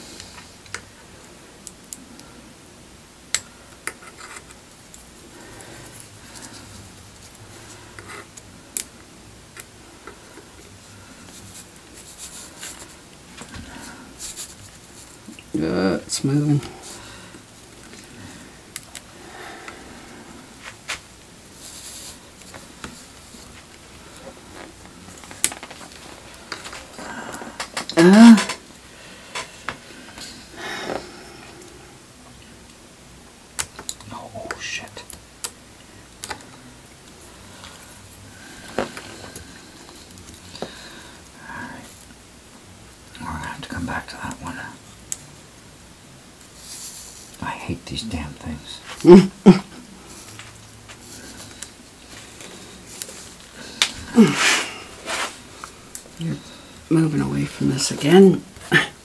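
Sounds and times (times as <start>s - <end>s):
handling and scraping noise: 3.8s - 8.8s, 10.0s - 15.4s, 16.2s - 31.6s, 46.4s - 47.4s, 49.8s - 56.6s.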